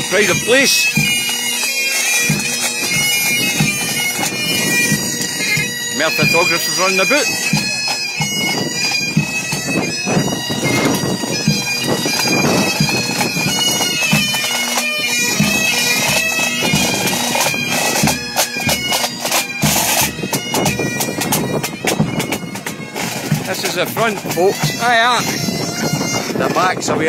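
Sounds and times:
drums beating: 0.0s - 1.4s, 2.2s - 27.0s
bagpipes playing: 0.0s - 27.0s.

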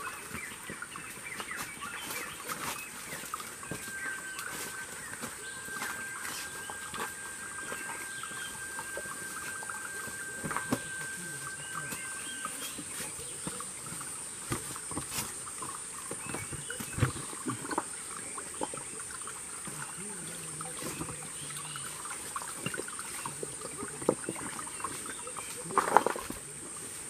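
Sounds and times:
footsteps on stones and leaves: 0.0s - 18.1s
high-pitched insect drone: 2.2s - 26.5s.

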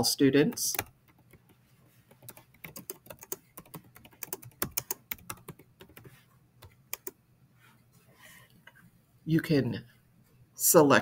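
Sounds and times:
computer keyboard typing: 0.5s - 7.2s.

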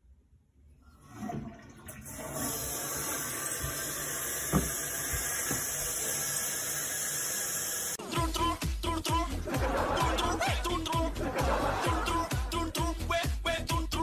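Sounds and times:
water hissing into toilet tank: 0.8s - 8.0s
short knock: 4.5s - 4.8s.

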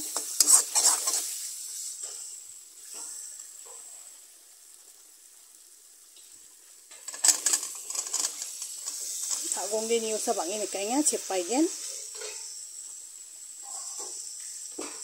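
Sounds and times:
metal spatula scraping wok: 0.0s - 3.9s, 7.0s - 10.4s, 11.8s - 12.6s, 13.6s - 15.0s
food sizzling in oil: 0.0s - 15.0s.

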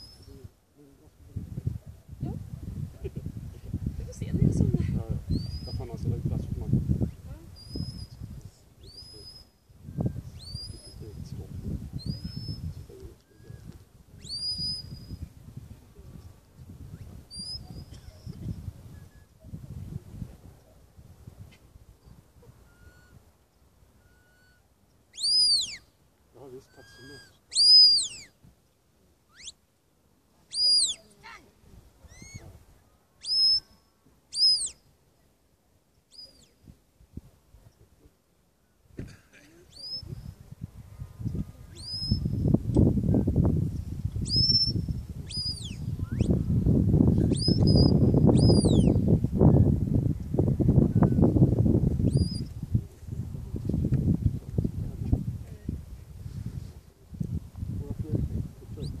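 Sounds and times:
wind rumbling on microphone: 0.0s - 24.1s, 36.4s - 37.8s, 39.8s - 59.0s
shepherd's whistle: 13.3s - 15.2s, 16.9s - 18.4s, 22.6s - 23.2s, 24.0s - 25.9s, 26.7s - 28.4s, 29.3s - 29.6s, 30.5s - 31.0s, 33.2s - 33.7s, 34.3s - 34.8s, 41.8s - 42.3s, 44.2s - 46.4s, 47.3s - 49.0s, 52.1s - 52.5s.

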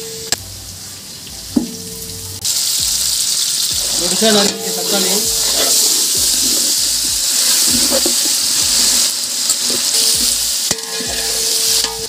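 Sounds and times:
food sizzling in hot oil: 0.0s - 12.0s
ladle scraping metal pot: 3.8s - 12.0s.

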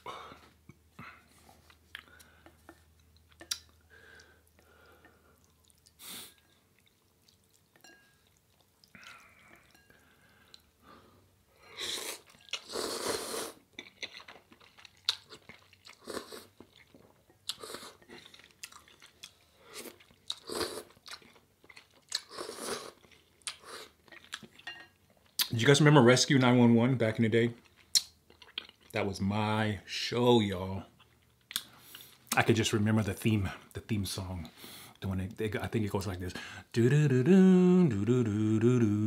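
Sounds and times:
person slurping noodles: 11.8s - 13.6s.

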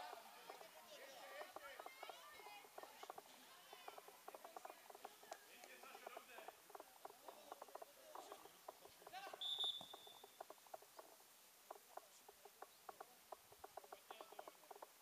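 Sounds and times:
faint scattered voices: 0.0s - 9.5s
referee's whistle blast: 9.4s - 10.1s.

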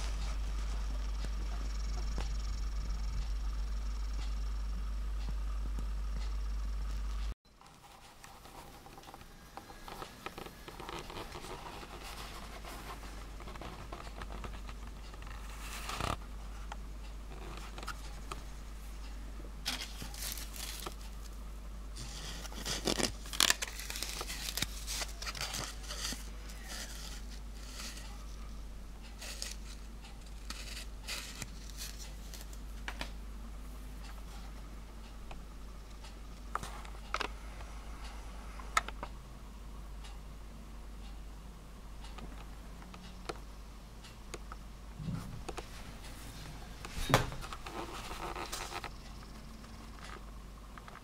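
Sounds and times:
cutting tool scraping wood: 29.2s - 32.1s.

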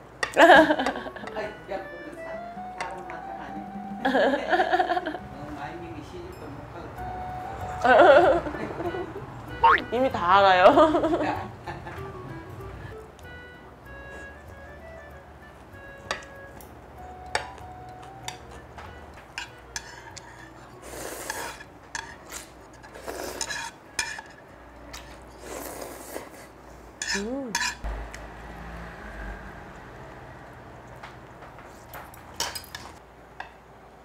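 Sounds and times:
metal chopsticks clicking on bowls: 16.0s - 25.2s
slurping broth: 19.8s - 23.8s, 25.0s - 27.3s.

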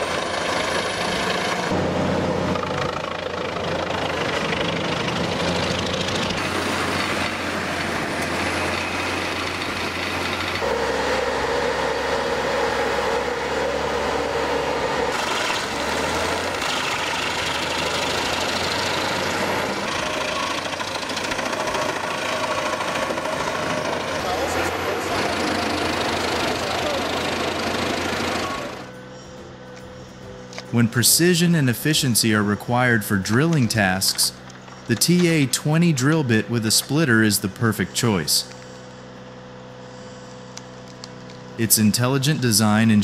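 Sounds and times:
wood grinder chipping wood: 0.0s - 28.9s.

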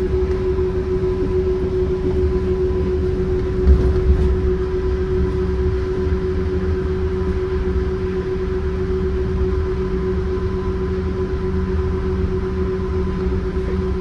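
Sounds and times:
train cabin rumble: 2.0s - 7.4s
train bumps: 3.4s - 5.4s.

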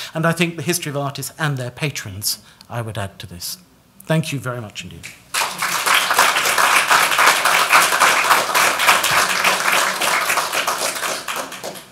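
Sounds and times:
audience applauding: 5.3s - 11.9s.

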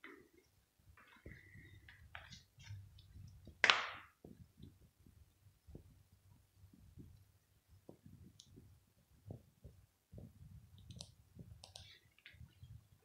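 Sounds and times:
soft low thumps: 4.2s - 11.6s
faint clicks: 10.8s - 12.6s.

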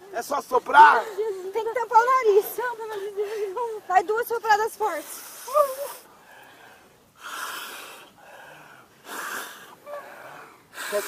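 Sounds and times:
strong rushing breaths: 4.8s - 11.0s.

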